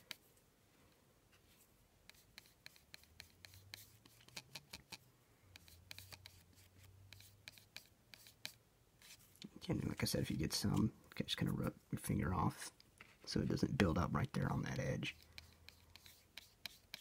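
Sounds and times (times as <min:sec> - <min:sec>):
paintbrush scratching on plastic: 0:01.5 - 0:05.0, 0:05.6 - 0:10.8, 0:14.7 - 0:17.0.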